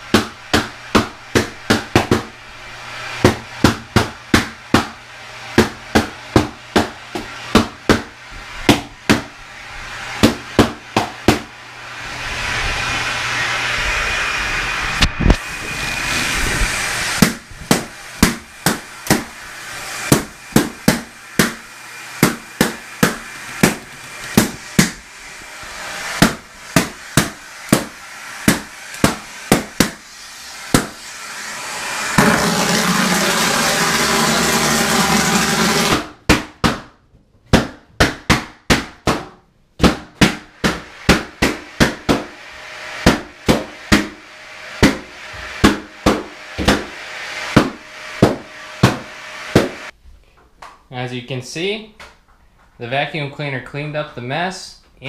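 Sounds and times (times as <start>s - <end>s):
vacuum cleaner running: 0.0s - 36.1s, 40.4s - 50.0s
balloons popping: 22.2s - 25.1s.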